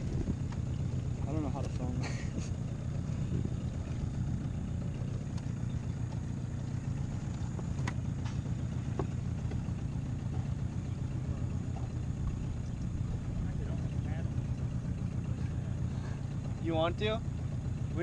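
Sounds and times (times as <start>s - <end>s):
outboard motor running at low speed: 0.0s - 18.0s.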